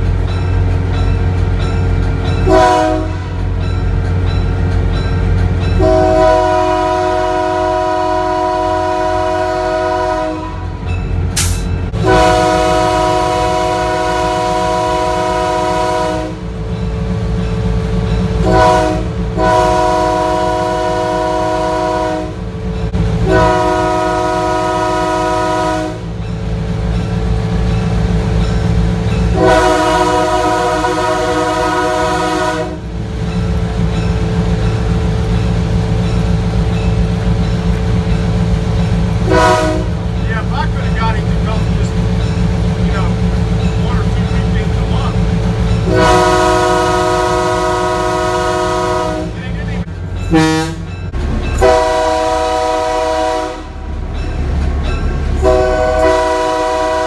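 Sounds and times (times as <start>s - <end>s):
locomotive rumble: 0.0s - 57.0s
locomotive air horn blasts: 2.4s - 3.4s, 5.8s - 10.8s, 12.0s - 16.5s, 18.4s - 22.4s, 23.2s - 26.1s, 29.4s - 32.9s, 39.2s - 40.0s, 45.8s - 50.9s, 51.6s - 53.8s, 55.4s - 57.0s.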